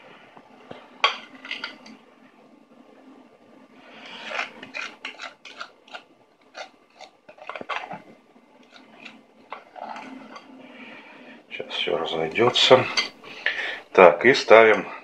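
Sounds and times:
spoon scraping glass bowl: 0:04.0 - 0:08.0, 0:08.6 - 0:10.5.

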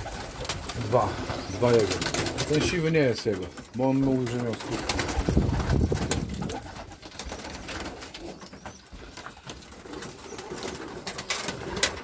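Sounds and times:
pigeons cooing: 0:00.0 - 0:02.8, 0:04.4 - 0:12.0.

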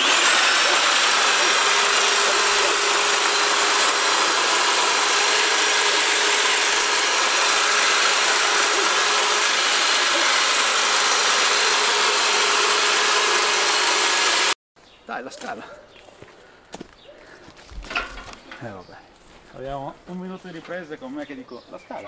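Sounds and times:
electric hedge trimmer whine: 0:00.0 - 0:14.6.

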